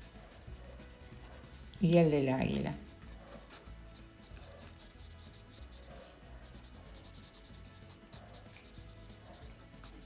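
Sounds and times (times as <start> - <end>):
pencil scratching on paper: 0.0 - 10.0.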